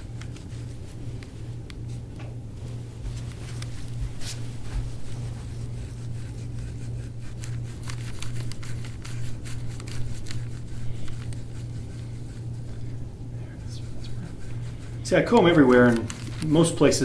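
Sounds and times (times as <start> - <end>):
low hum: 0.0 - 17.0
scraping tool on oiled skin: 4.4 - 16.8.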